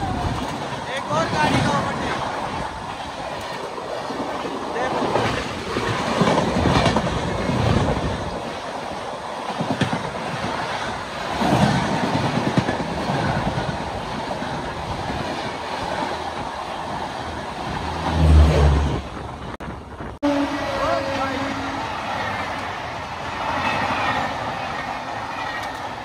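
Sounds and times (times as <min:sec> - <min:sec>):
train wheels clattering over rail joints: 0:02.5 - 0:16.5.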